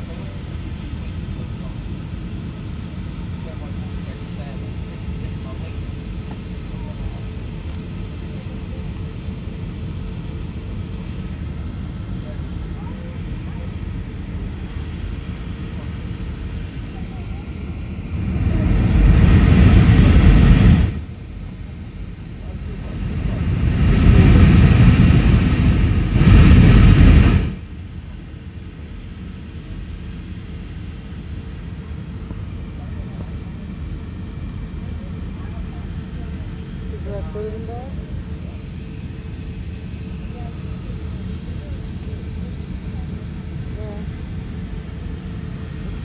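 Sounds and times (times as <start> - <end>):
airliner cabin hum: 0.0 - 46.0
jet engine and airflow rumble: 0.0 - 46.0
loud rushing noise: 18.0 - 21.1, 22.6 - 27.7.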